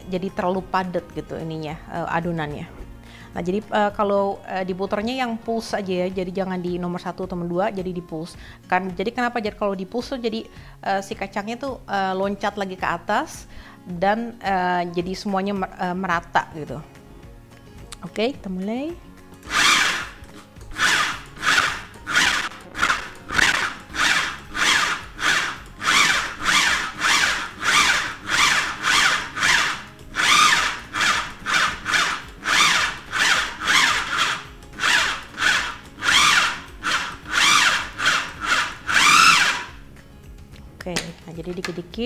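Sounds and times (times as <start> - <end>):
food processor pulsing: 19.4 - 39.8.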